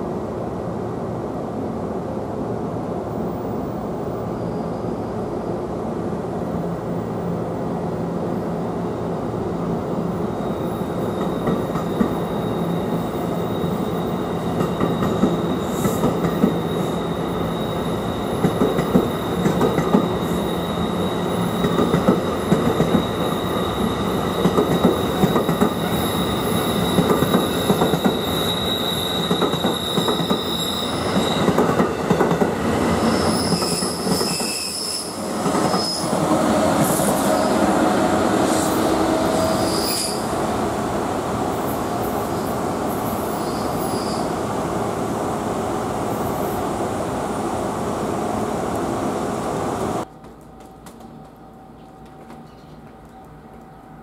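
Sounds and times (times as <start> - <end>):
train rolling on rails: 0.0 - 54.0
high-pitched wheel squeal: 10.4 - 31.6, 33.0 - 36.2, 38.4 - 40.3, 43.3 - 44.3.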